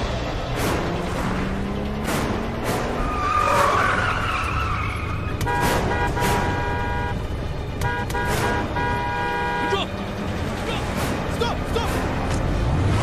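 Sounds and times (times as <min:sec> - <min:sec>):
car engine revving: 0:00.0 - 0:13.0
tyres squealing: 0:02.9 - 0:06.6
car horn: 0:05.3 - 0:10.0.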